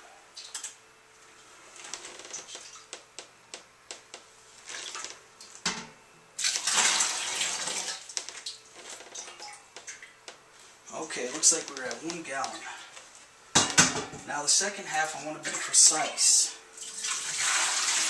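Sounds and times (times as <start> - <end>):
water pouring: 6.4 - 8.1, 16.8 - 18.0.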